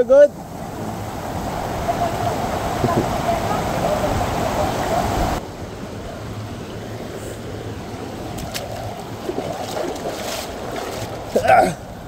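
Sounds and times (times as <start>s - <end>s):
stream flowing over rocks: 0.3s - 12.0s
feet splashing in water: 8.2s - 11.9s.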